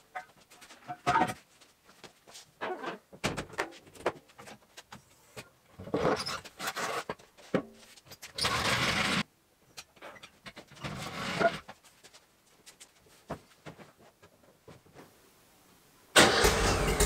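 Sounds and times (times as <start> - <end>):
floor jack rolling on concrete: 8.3 - 9.2, 10.7 - 11.7.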